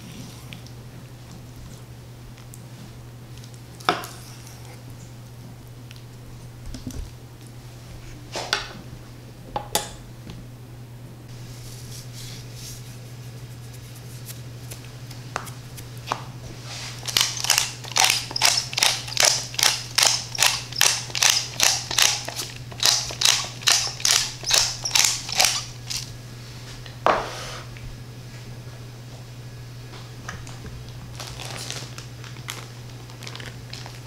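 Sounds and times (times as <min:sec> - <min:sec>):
steady low hum: 0:00.0 - 0:34.0
pepper mill grinding: 0:16.7 - 0:26.1.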